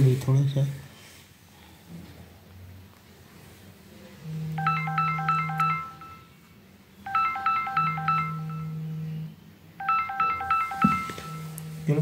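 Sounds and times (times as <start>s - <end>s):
low steady buzz: 4.0s - 12.0s
mobile phone ringtone: 4.2s - 6.5s, 7.1s - 11.8s.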